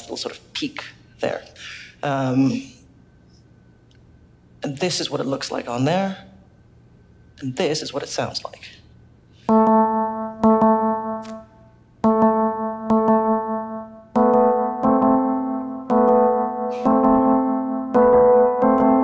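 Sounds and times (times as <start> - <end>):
electric piano chords: 9.5 - 19.0.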